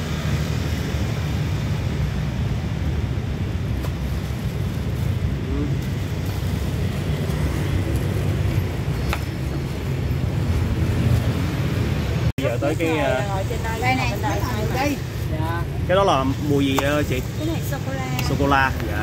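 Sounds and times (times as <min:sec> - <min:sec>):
low rumble of street traffic: 0:00.0 - 0:19.0.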